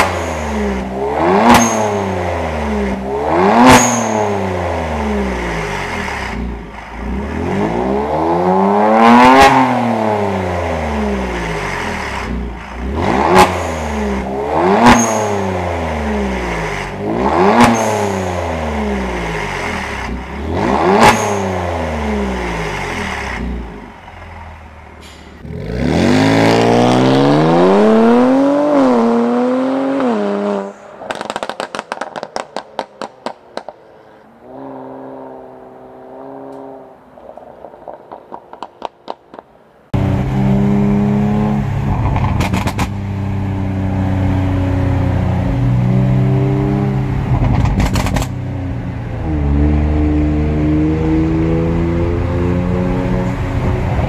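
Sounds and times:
car engine revving: 0.0s - 33.7s, 39.9s - 54.0s
car driving away: 0.0s - 39.2s, 39.9s - 54.0s
car engine idling: 22.3s - 25.4s
exhaust crackling and popping: 31.0s - 33.8s, 36.5s - 39.8s, 41.8s - 43.1s, 47.2s - 48.4s.

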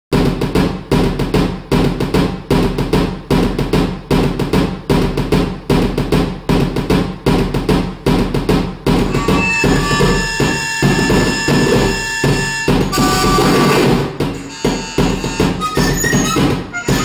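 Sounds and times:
low electronic pulse: 9.1s - 16.1s.

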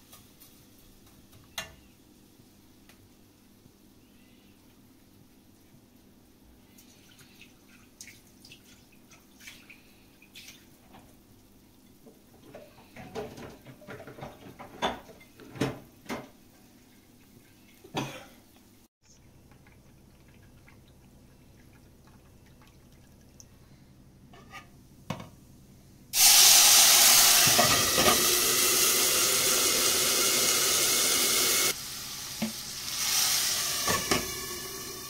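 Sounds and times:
faint steady hum: 0.5s - 26.2s.

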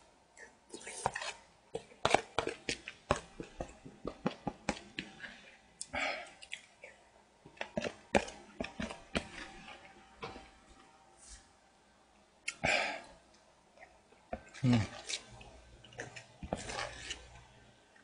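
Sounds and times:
person chewing: 0.4s - 10.4s, 12.4s - 17.4s.

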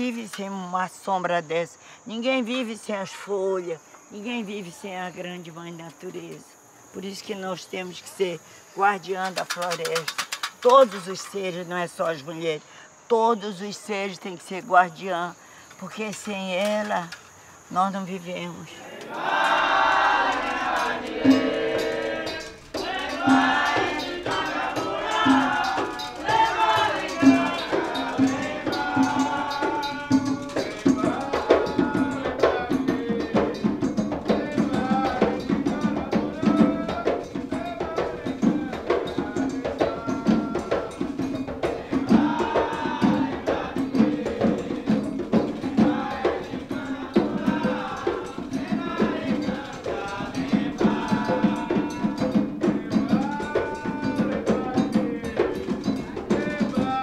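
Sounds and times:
drums and rattles beat: 9.0s - 11.6s, 18.8s - 57.0s
people singing: 17.8s - 57.0s.

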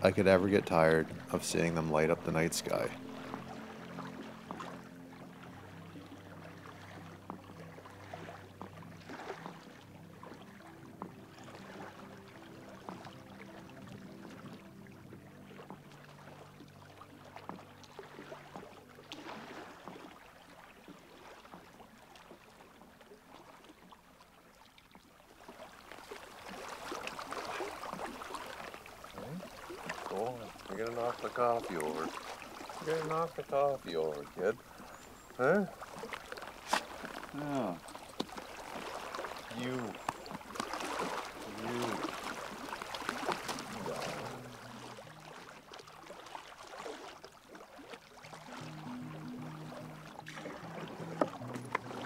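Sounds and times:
soft background music chords: 0.0s - 23.3s, 26.4s - 35.6s, 41.3s - 46.2s, 48.3s - 52.0s
water splashing and lapping: 0.0s - 52.0s.

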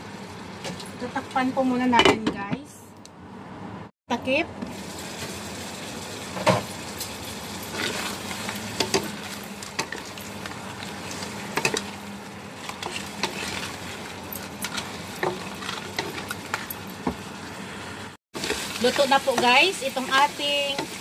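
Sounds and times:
food sizzling in a wok: 4.7s - 21.0s
spatula knocking and scraping pan: 11.5s - 11.9s, 14.6s - 17.2s.

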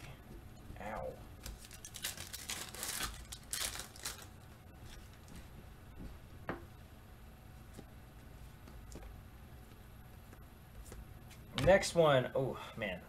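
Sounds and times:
foil wrapper tearing and crinkling: 1.4s - 4.4s.

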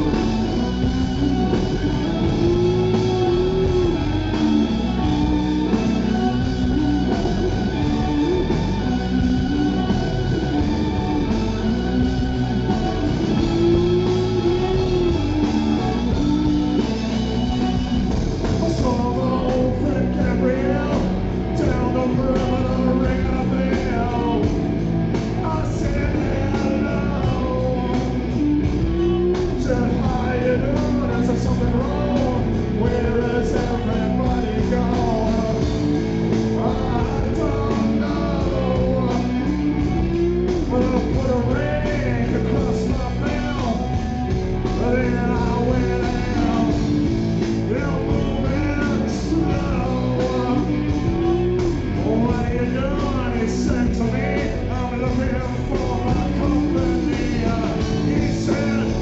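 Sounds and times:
live rock band playing: 0.0s - 59.0s
man singing into microphone: 18.5s - 24.6s, 25.2s - 59.0s.

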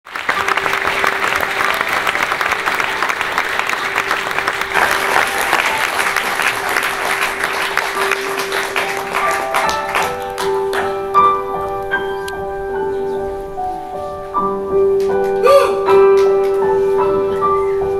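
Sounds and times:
audience applauding: 0.1s - 11.4s
piano single notes: 0.4s - 17.9s.

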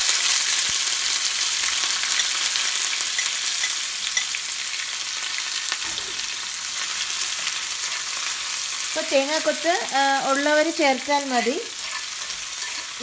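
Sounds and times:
coconut frying in oil: 0.0s - 13.0s
spoon stirring in skillet: 1.3s - 4.8s, 5.8s - 9.4s, 11.3s - 13.0s.

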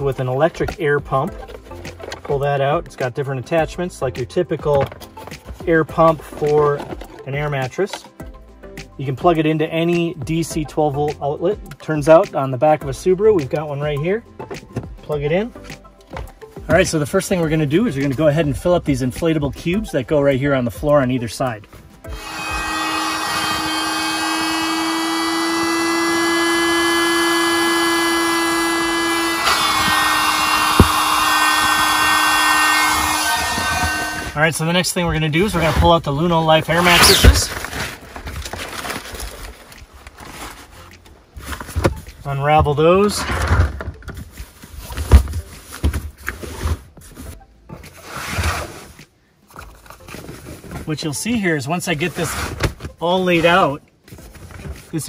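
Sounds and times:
air hissing: 22.1s - 34.4s, 36.8s - 37.5s
electric air pump motor hum: 22.1s - 34.4s, 36.8s - 37.4s.

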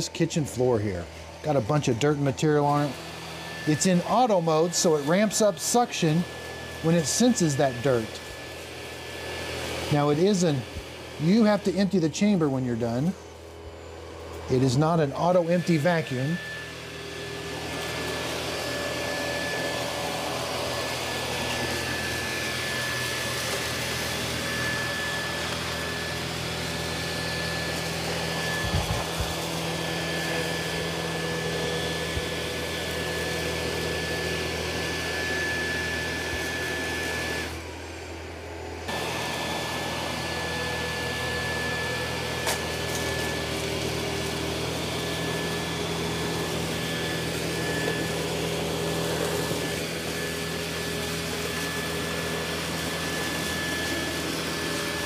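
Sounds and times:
robot vacuum suction: 0.0s - 55.0s.

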